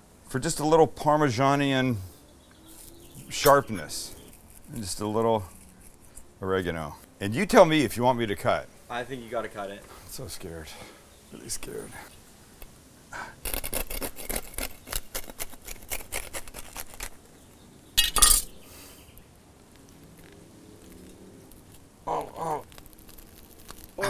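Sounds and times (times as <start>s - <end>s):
knife crunching through bread crust: 2.7s - 6.3s, 13.4s - 17.2s, 19.8s - 24.0s
short vocal sound: 22.1s - 22.7s.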